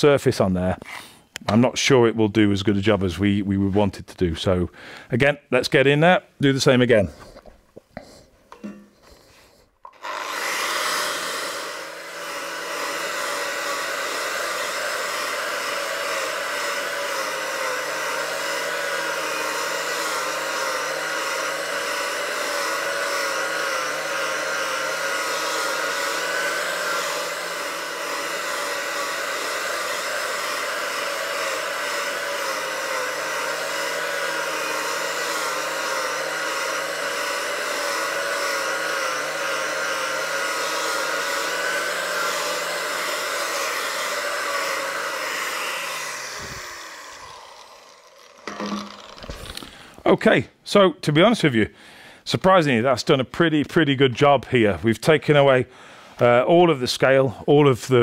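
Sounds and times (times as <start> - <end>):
angle grinder whine: 9.8 - 49.9.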